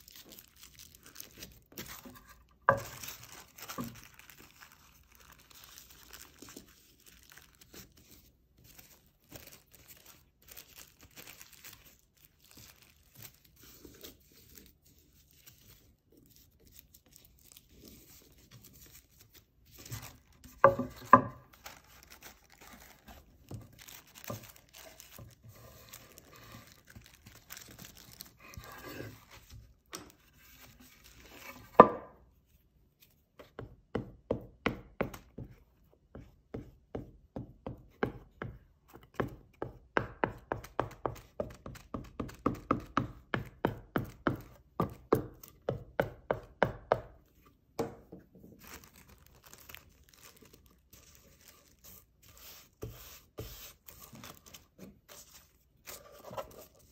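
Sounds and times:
tissue paper rustling: 0:00.0 - 0:31.7, 0:48.5 - 0:56.9.

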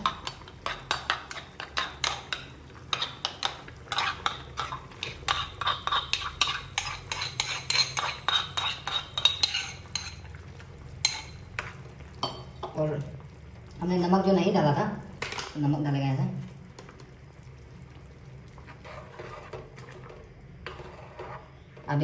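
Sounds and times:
metal spoon scraping metal bowl: 0:02.9 - 0:10.3, 0:18.7 - 0:19.6, 0:20.6 - 0:21.6.

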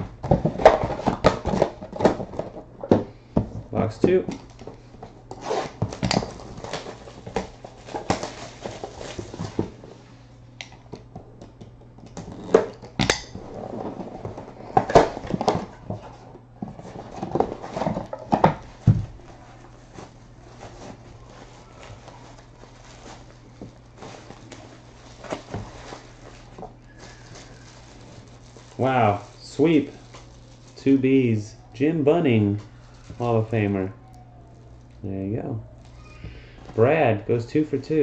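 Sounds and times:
low steady hum: 0:00.0 - 0:38.0
plastic pouch crinkling: 0:18.6 - 0:31.2, 0:32.6 - 0:33.6.

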